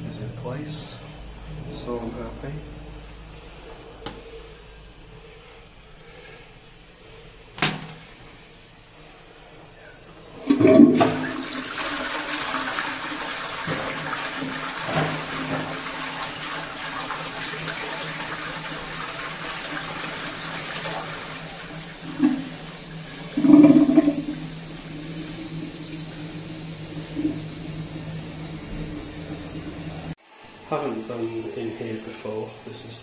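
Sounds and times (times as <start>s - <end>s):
toilet flushing: 8.9s - 33.0s.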